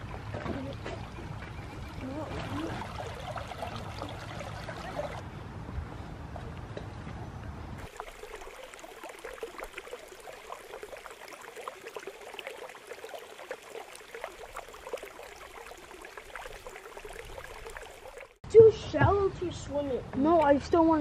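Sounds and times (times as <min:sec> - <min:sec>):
stream flowing: 0:00.0 - 0:05.2, 0:07.8 - 0:18.4.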